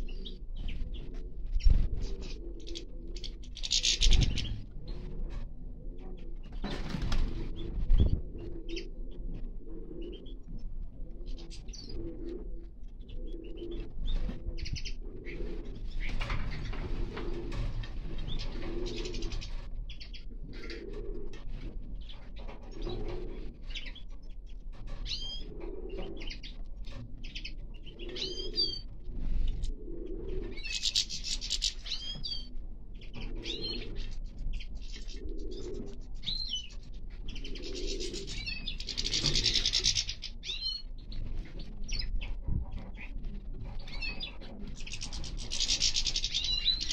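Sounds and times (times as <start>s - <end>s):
pigeon cooing: 0.0s - 24.3s, 24.9s - 46.9s
wings flapping: 6.6s - 8.2s
finches chirping: 30.6s - 41.2s, 43.9s - 46.9s.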